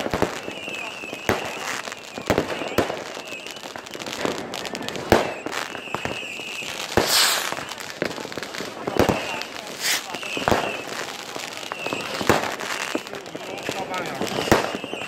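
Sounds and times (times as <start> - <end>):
fireworks banging: 0.0 - 15.0
fireworks crackle: 0.0 - 15.0
loud hissing rush: 7.0 - 7.5, 9.7 - 10.1.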